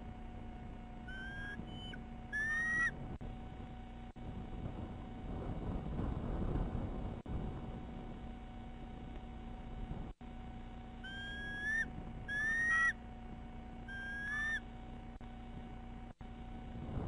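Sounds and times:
eagle calling: 0:00.9 - 0:03.2, 0:11.0 - 0:13.1, 0:13.8 - 0:14.7.

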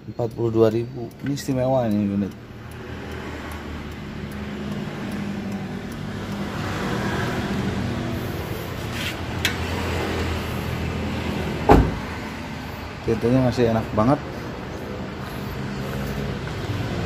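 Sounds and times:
car door slamming: 0:11.6 - 0:12.2.

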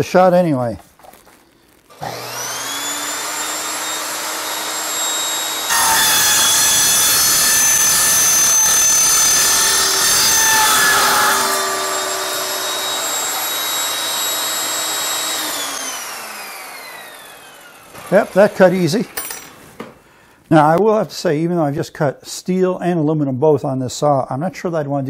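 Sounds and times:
table saw whining: 0:01.9 - 0:20.0
saw blade cutting aluminium: 0:02.0 - 0:19.2.

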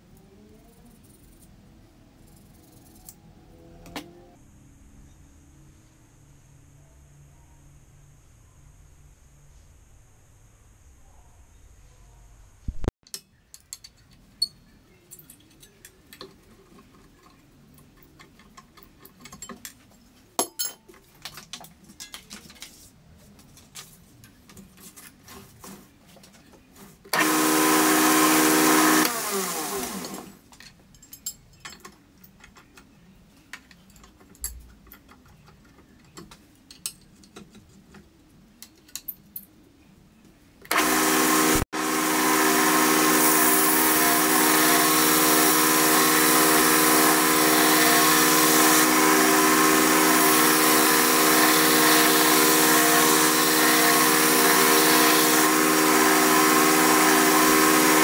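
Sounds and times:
metal parts clicking and knocking: 0:13.0 - 0:22.6, 0:30.5 - 0:32.9, 0:33.5 - 0:38.0, 0:38.6 - 0:39.5
belt grinder running: 0:27.2 - 0:30.4, 0:40.7 - 0:58.0.

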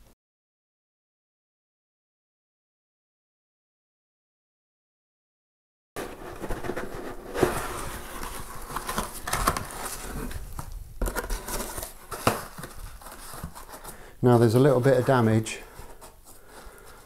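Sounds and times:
cardboard lid handling: 0:06.0 - 0:17.0
plastic wrap crinkling: 0:06.0 - 0:17.0.

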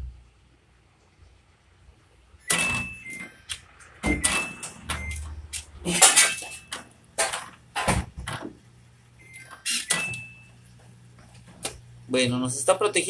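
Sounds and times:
washing machine low hum: 0:00.0 - 0:13.0
washing machine clunks and rattles: 0:04.0 - 0:05.2, 0:06.0 - 0:08.6, 0:09.8 - 0:10.3.

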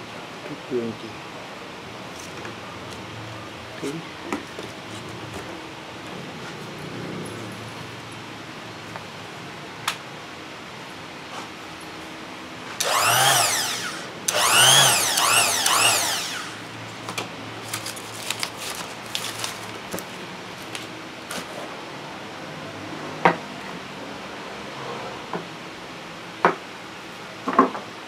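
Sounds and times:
orbital sander motor whirring: 0:12.8 - 0:16.8.

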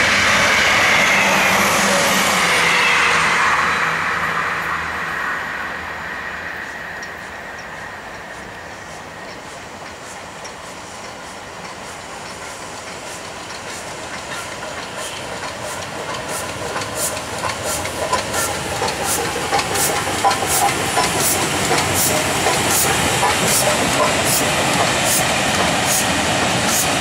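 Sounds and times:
steam locomotive hissing steam: 0:00.0 - 0:27.0
wheels ticking: 0:09.2 - 0:27.0.

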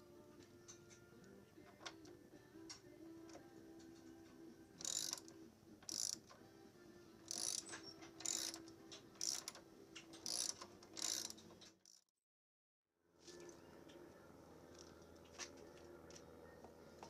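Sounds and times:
ratchet wrench clicking: 0:04.8 - 0:06.3, 0:07.3 - 0:12.0.

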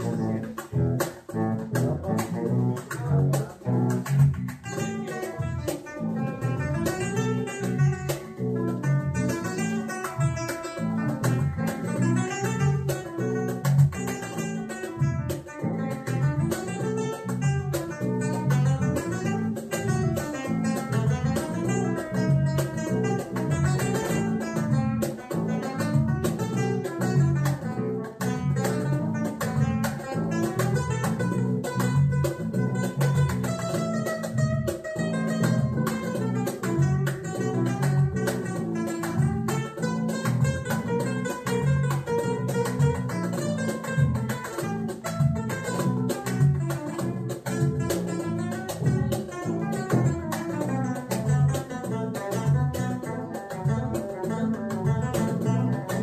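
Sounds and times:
plucked acoustic guitar: 0:00.0 - 0:56.0
steady bass line: 0:00.0 - 0:56.0.

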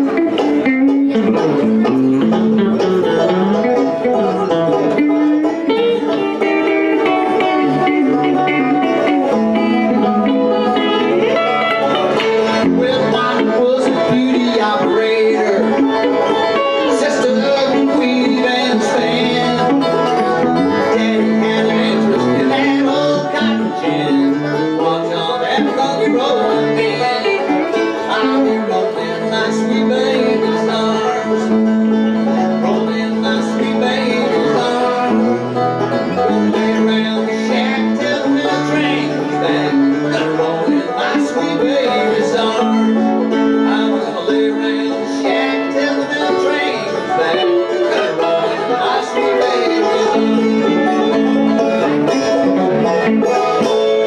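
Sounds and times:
banjo picking: 0:00.0 - 0:54.0
electric guitar: 0:00.0 - 0:54.0.

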